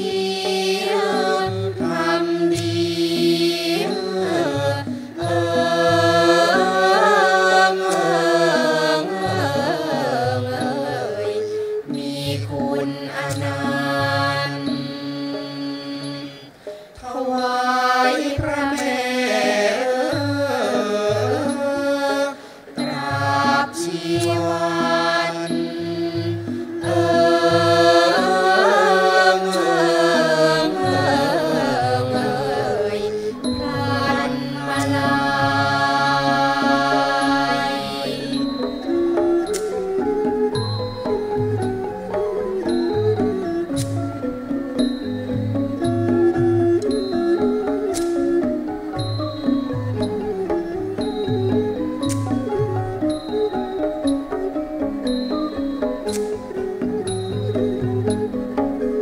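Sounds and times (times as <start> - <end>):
classical ensemble playing: 0.0 - 16.7, 17.6 - 59.0
female chorus singing in unison: 0.0 - 39.8.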